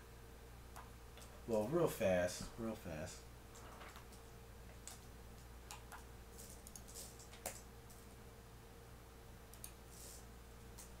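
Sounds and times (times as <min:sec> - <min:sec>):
steady low hum: 0:00.0 - 0:11.0
keyboard and mouse clicks: 0:03.6 - 0:05.1, 0:05.7 - 0:07.7, 0:09.5 - 0:09.8.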